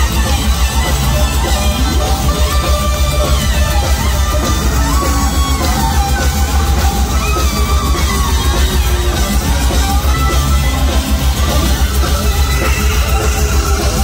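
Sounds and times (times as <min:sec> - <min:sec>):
rock band playing live: 0:00.0 - 0:14.0.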